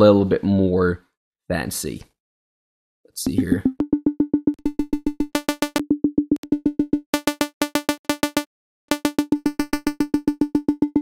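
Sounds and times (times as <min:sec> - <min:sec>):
pulsing synth pluck: 0:03.4 - 0:11.0.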